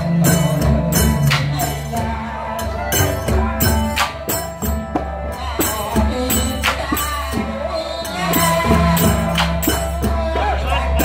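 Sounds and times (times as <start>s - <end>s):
percussion beat: 0.0s - 11.0s.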